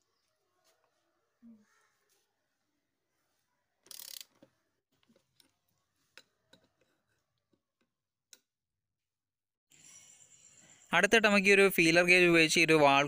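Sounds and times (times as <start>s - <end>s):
ratchet wrench clicking: 3.9s - 4.3s.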